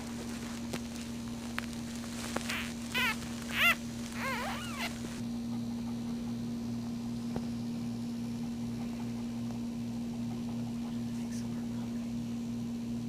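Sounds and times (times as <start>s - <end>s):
steady low hum: 0.0s - 13.0s
puppy squealing: 2.2s - 5.2s.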